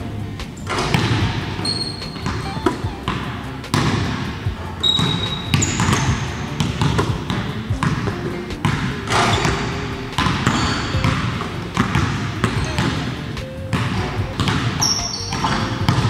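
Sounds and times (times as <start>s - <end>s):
basketballs bouncing on wooden floor: 0.4s - 16.0s
short high squeaks: 1.6s - 3.7s, 4.8s - 6.2s, 14.8s - 15.8s.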